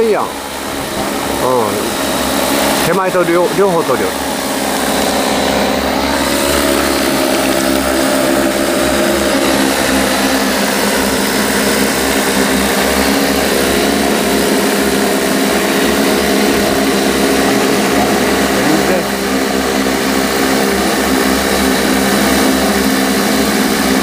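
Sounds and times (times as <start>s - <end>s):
drone rotors hovering: 0.0s - 24.0s.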